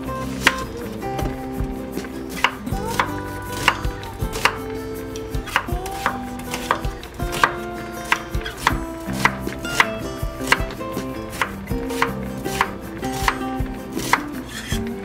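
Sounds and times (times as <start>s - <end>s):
knife chopping on wooden board: 2.4s - 4.6s, 5.4s - 14.4s.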